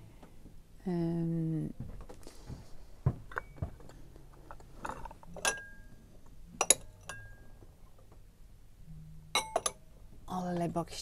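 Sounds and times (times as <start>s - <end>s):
ceramic bowls clinking: 4.8s - 6.0s, 6.6s - 7.6s, 9.4s - 9.8s.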